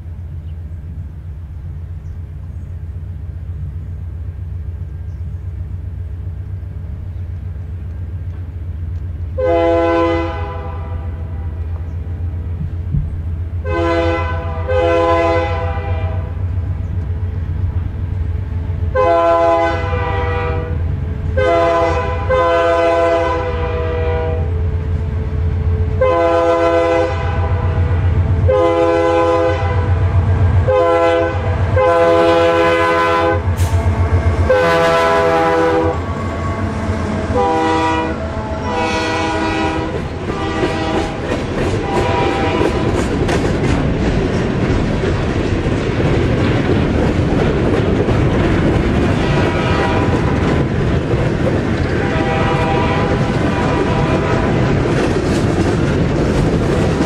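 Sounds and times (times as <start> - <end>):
train rumbling: 0.0 - 57.0
locomotive air horn blasts: 9.4 - 11.6, 13.6 - 16.4, 18.9 - 25.2, 25.8 - 30.0, 30.6 - 42.9, 49.2 - 50.4, 52.0 - 54.7.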